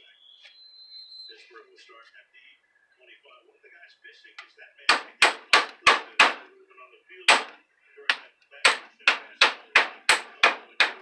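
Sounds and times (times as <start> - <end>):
hammer striking metal: 4.9 - 6.5, 7.3 - 11.0.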